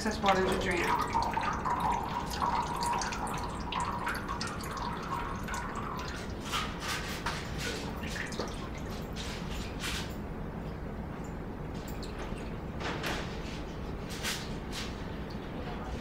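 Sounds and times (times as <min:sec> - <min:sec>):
water dripping into steel sink: 0:00.0 - 0:06.6, 0:07.9 - 0:09.2, 0:11.2 - 0:12.7.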